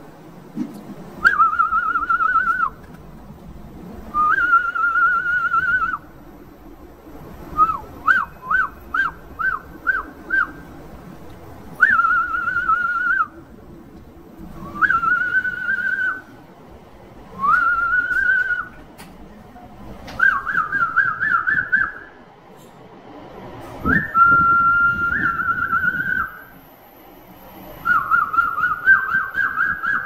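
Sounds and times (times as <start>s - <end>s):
person whistling: 1.2s - 2.8s, 17.4s - 18.8s, 20.2s - 22.1s, 23.8s - 26.5s, 27.8s - 30.0s.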